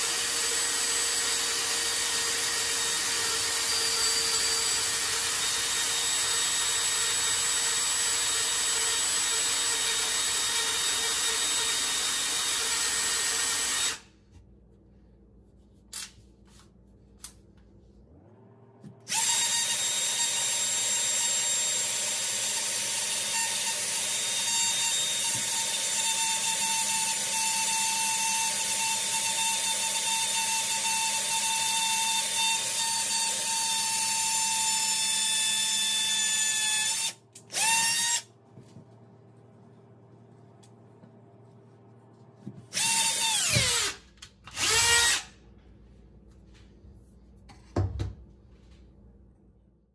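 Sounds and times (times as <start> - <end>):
cordless drill whining: 0.0 - 14.1, 19.0 - 38.3, 42.7 - 45.4.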